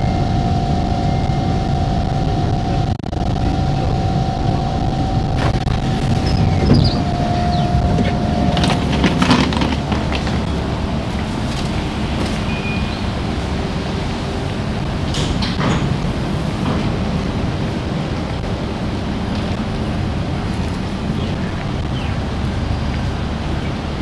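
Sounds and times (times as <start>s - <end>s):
train whine: 0.0s - 24.0s
knocks and clatter: 5.3s - 12.5s, 15.1s - 17.0s
train doors sliding open: 5.4s - 24.0s.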